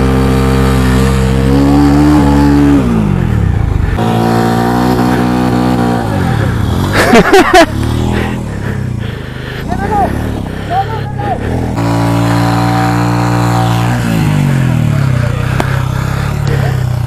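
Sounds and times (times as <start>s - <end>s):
motorcycle engine revving: 0.0s - 17.0s.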